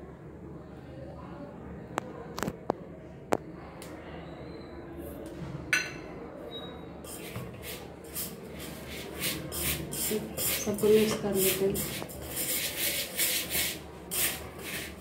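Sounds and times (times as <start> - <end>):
metal bowl clink: 5.8 - 6.1
hand rubbing flour mix: 7.1 - 15.0.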